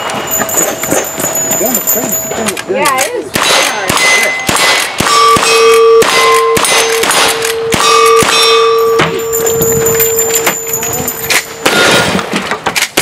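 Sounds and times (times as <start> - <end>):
steel targets ringing: 0.0 - 12.4
rifle shots: 3.3 - 8.8, 11.6 - 13.0.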